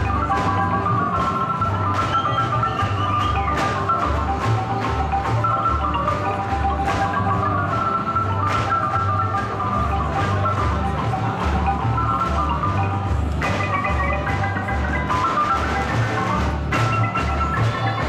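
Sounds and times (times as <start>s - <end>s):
marimba folk dance music: 0.0s - 18.0s.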